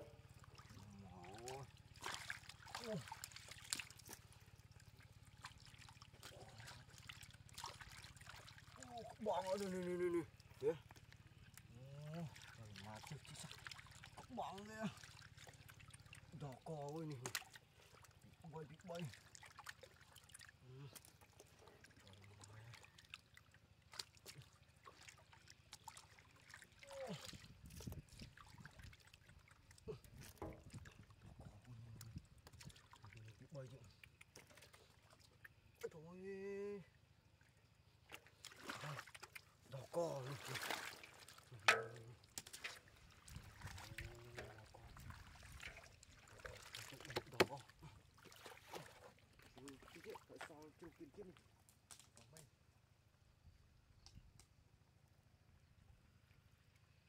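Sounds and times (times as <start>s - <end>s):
splashing in muddy water: 0.0s - 36.2s, 36.9s - 52.8s
small drips: 0.0s - 52.6s
catfish slapping in water: 1.4s - 8.8s, 38.1s - 39.5s, 40.3s - 43.9s, 45.0s - 50.5s.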